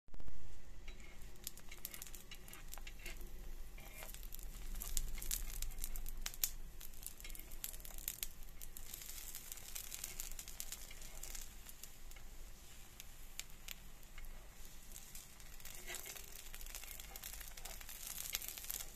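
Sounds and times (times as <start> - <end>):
pancake batter sizzling: 0.8 - 18.9.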